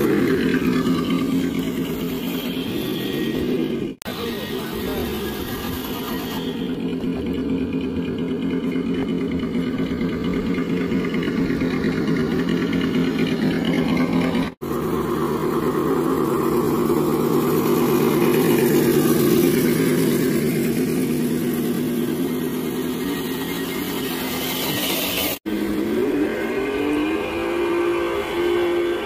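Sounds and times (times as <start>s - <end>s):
radio-controlled car motor running: 0.0s - 7.3s, 16.9s - 25.4s.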